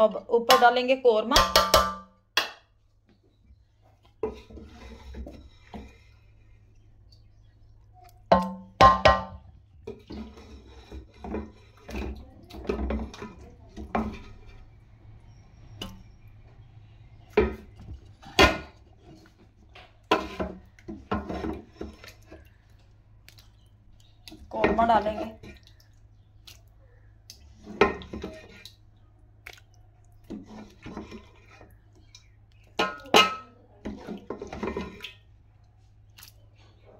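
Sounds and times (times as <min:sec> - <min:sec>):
spoon scraping metal pot: 0:04.2 - 0:06.4, 0:09.9 - 0:14.8, 0:20.1 - 0:22.4, 0:27.5 - 0:28.7, 0:30.3 - 0:31.7, 0:32.7 - 0:35.2.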